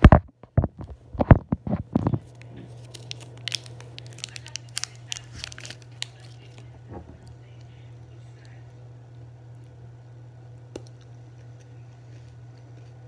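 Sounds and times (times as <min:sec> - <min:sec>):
plastic wrapper crinkling: 0:01.2 - 0:06.7.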